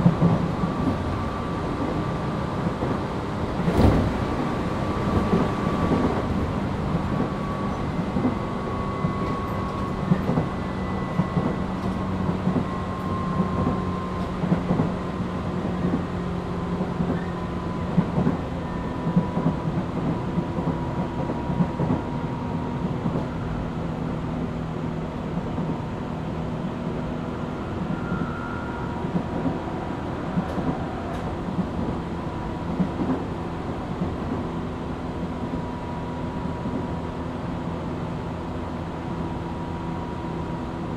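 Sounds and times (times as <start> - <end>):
train wheels rumbling on rails: 0.0 - 40.9.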